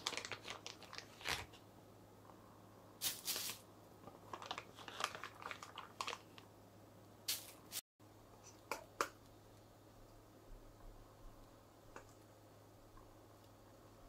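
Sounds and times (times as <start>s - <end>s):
plastic bag rustling: 0.0s - 1.5s, 3.0s - 6.4s.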